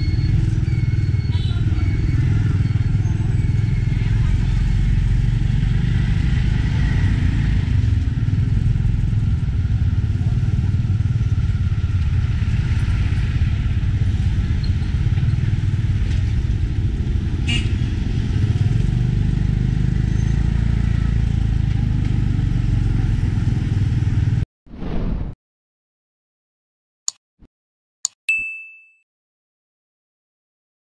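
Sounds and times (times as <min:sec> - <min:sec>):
tuk-tuk engine rumble: 0:00.0 - 0:24.4.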